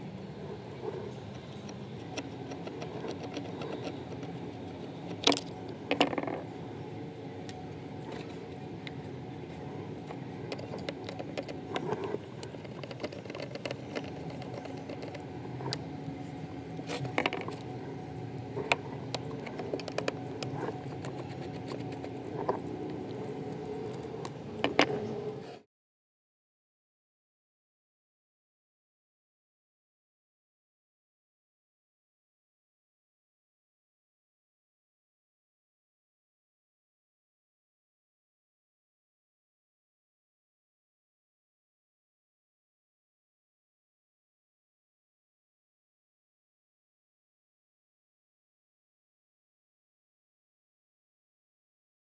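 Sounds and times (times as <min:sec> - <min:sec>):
steady low hum: 0:00.0 - 0:25.6
screwdriver scraping metal screws: 0:01.2 - 0:05.4, 0:10.5 - 0:15.2.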